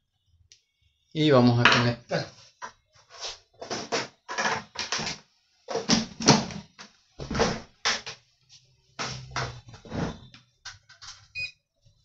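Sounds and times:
plastic clacks and knocks: 0:03.6 - 0:08.2.

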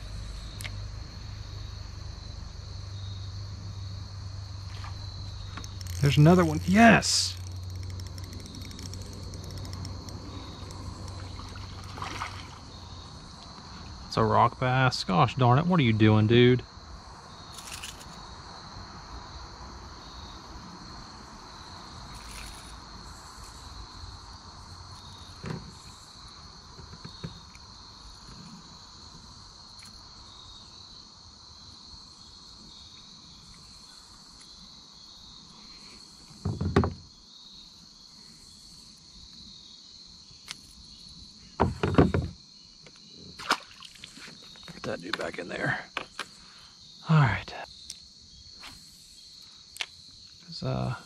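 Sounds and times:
insects chirring: 0:00.0 - 0:51.0
small clicks: 0:05.5 - 0:11.2.

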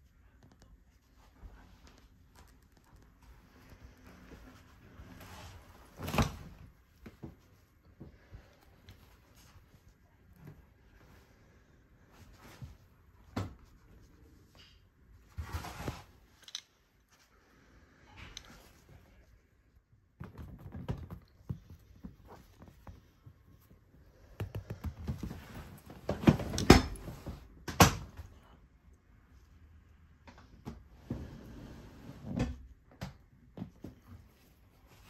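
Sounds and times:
handling knocks clicks and rustling: 0:20.2 - 0:28.2.

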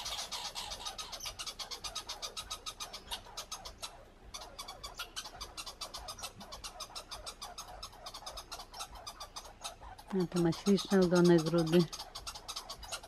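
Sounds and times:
squirrel chattering: 0:00.0 - 0:13.0.

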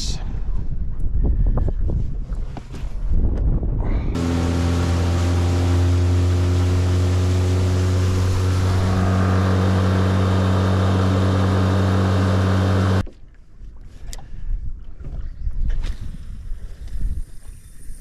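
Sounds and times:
outboard motor humming: 0:04.2 - 0:13.0
water rushing along hull: 0:04.2 - 0:13.0.

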